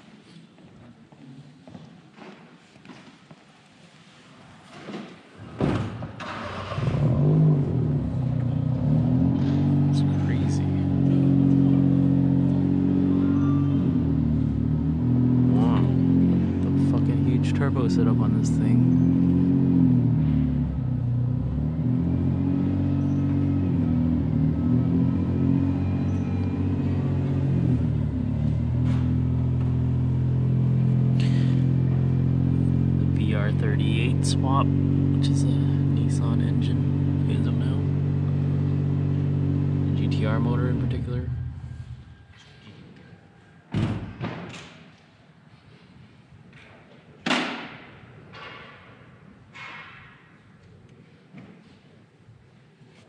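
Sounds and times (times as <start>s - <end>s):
car engine starting and revving: 5.4s - 42.2s.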